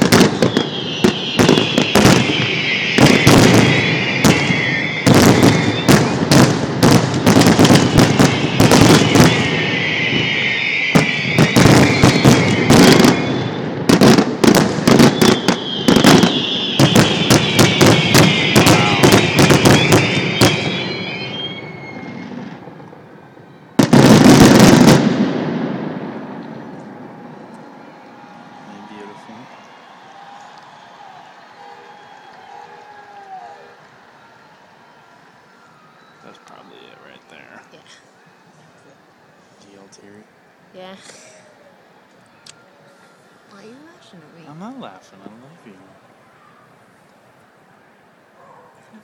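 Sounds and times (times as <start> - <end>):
loud firework boom: 0.0 - 23.0, 23.8 - 27.3.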